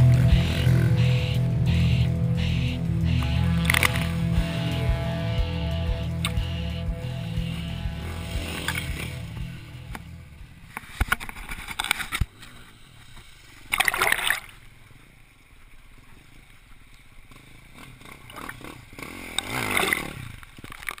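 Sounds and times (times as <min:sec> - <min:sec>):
dirt bike engines: 0:00.0 - 0:21.0
bike riding through water: 0:07.6 - 0:21.0.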